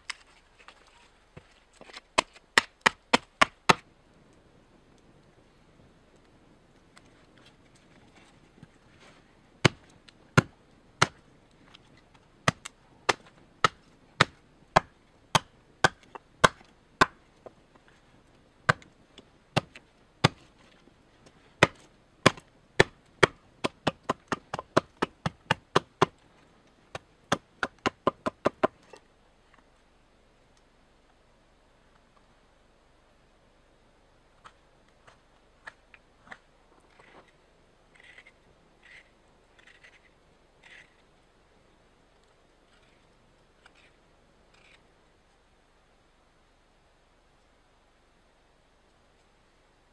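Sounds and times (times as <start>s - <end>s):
axe chopping wood: 1.9s - 3.8s, 9.6s - 11.2s, 12.4s - 17.2s, 18.7s - 18.9s, 19.6s - 20.5s, 21.6s - 26.2s, 26.9s - 28.8s.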